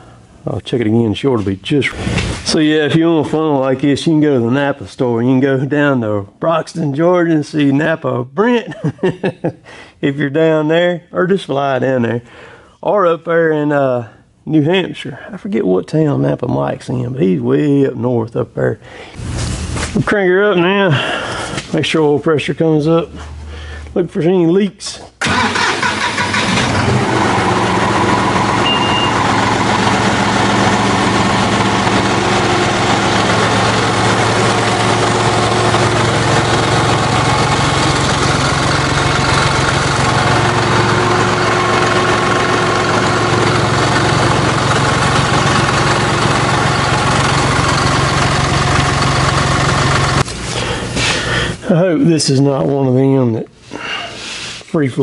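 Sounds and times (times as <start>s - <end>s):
tractor diesel engine starting and idling: 25.2s - 51.6s.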